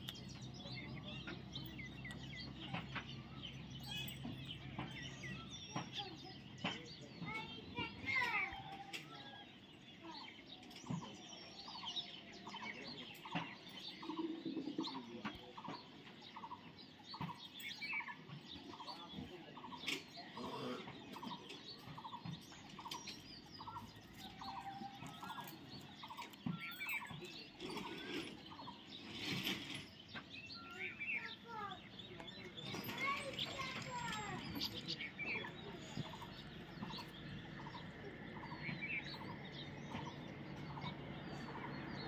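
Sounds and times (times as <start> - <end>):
parrots chattering and chirping: 17.2 - 39.4.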